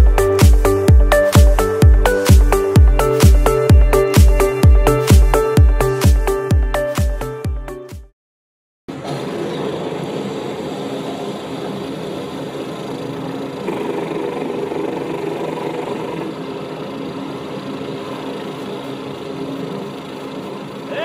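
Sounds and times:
voices imitating droning engines: 0:09.5 - 0:21.0.

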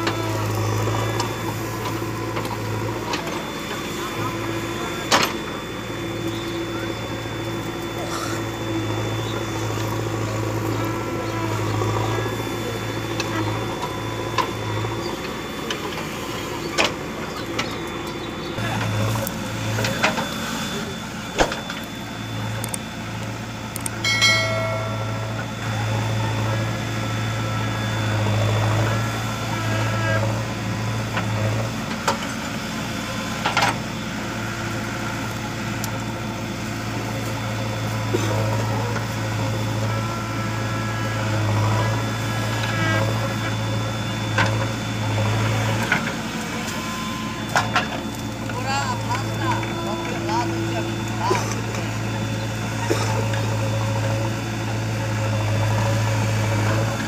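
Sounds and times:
diesel engine under load: 0:00.0 - 0:57.0
high-pitched squeal: 0:23.9 - 0:31.6.

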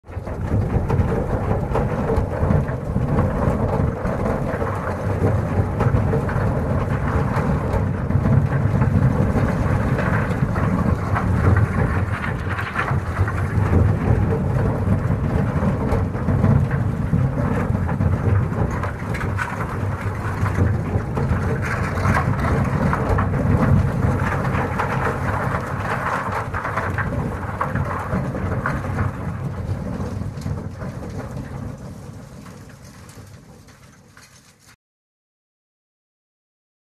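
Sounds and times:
rock and debris collapsing: 0:00.0 - 0:34.8.

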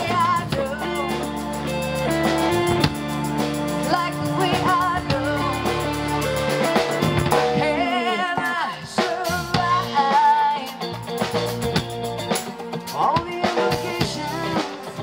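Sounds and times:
woman singing with vibrato: 0:00.0 - 0:01.8, 0:03.8 - 0:06.2, 0:07.3 - 0:10.9
bass guitar: 0:00.0 - 0:15.0
drum kit: 0:00.0 - 0:15.0
electric guitar: 0:00.0 - 0:15.0.

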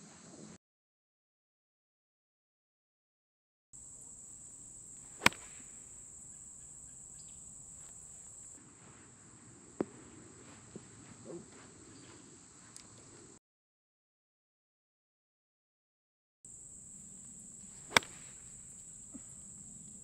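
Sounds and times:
golf club striking ball: 0:03.8 - 0:08.5, 0:16.6 - 0:19.6
insects buzzing: 0:03.8 - 0:13.4, 0:16.5 - 0:20.0.

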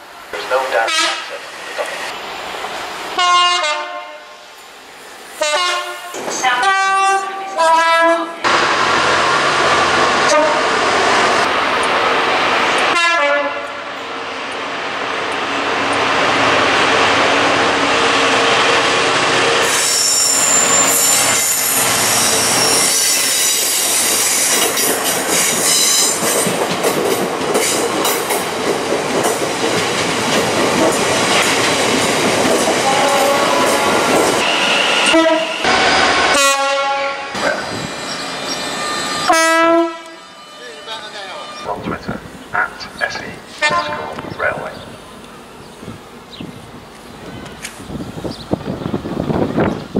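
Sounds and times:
locomotive horn: 0:00.8 - 0:01.4, 0:03.2 - 0:04.4, 0:05.4 - 0:08.5, 0:10.2 - 0:10.7, 0:12.9 - 0:14.0, 0:32.8 - 0:37.6, 0:39.2 - 0:41.9, 0:43.6 - 0:44.3
short horn blasts: 0:00.9 - 0:01.3, 0:35.0 - 0:37.3, 0:39.2 - 0:41.7, 0:43.6 - 0:44.2
high-pitched wheel squeal: 0:19.6 - 0:24.5.

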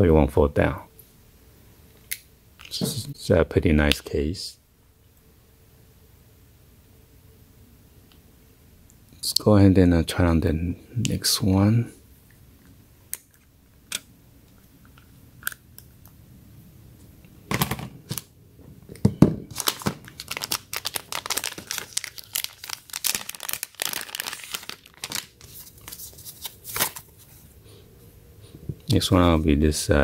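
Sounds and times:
plastic bag crinkling and tearing: 0:19.5 - 0:27.1.

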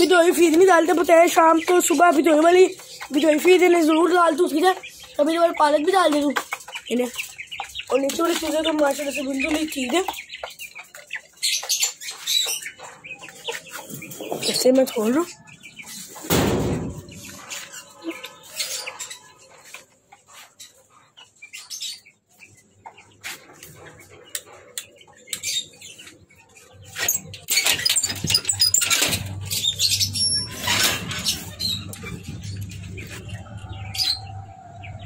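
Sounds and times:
birds flapping and chirping: 0:00.0 - 0:35.0
metal door clattering: 0:16.2 - 0:17.2, 0:27.2 - 0:29.8, 0:30.4 - 0:32.2
door thump: 0:16.3 - 0:17.1.

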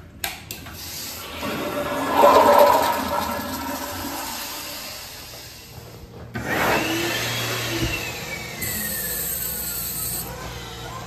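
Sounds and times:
loud rushing motor noise with whine: 0:01.2 - 0:05.6.

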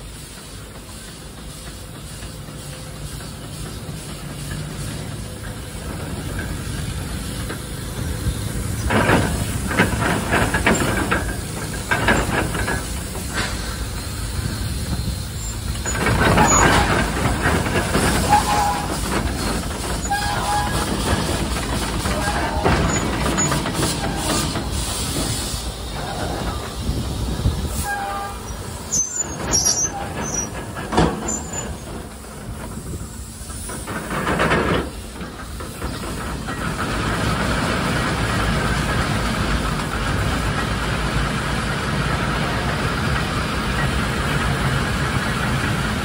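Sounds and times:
steam engine hissing: 0:00.0 - 0:46.0
machinery squeals: 0:10.6 - 0:26.7, 0:27.7 - 0:32.0.

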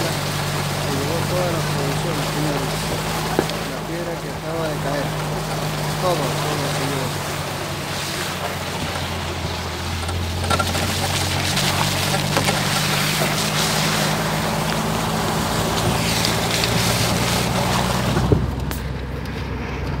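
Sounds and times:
low engine hum: 0:00.0 - 0:20.0
wind on microphone: 0:15.5 - 0:20.0.

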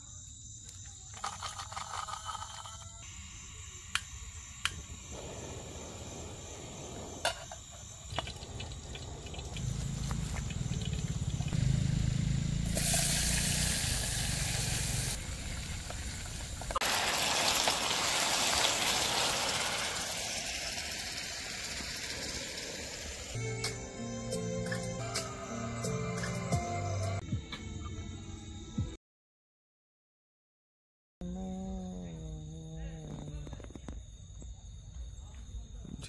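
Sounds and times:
rain falling: 0:08.2 - 0:11.8, 0:13.0 - 0:23.4.

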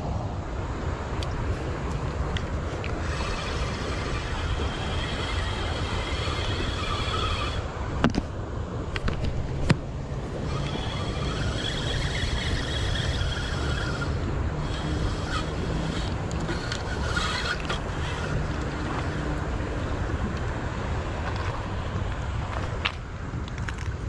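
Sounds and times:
wind rumble on microphone: 0:00.0 - 0:24.0
spinning reel cranking: 0:02.7 - 0:07.8, 0:10.3 - 0:19.5.

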